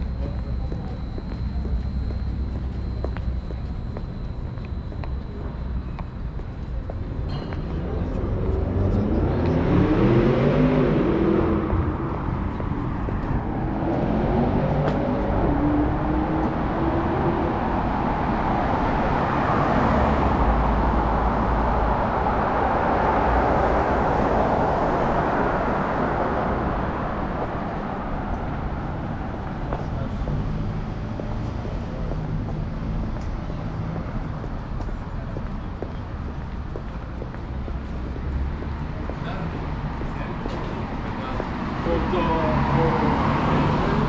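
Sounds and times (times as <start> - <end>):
cars passing on street: 0.0 - 44.0.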